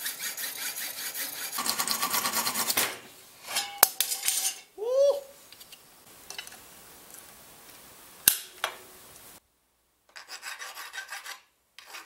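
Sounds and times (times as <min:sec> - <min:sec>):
hacksaw scraping strokes: 0:00.0 - 0:02.9, 0:10.2 - 0:12.0.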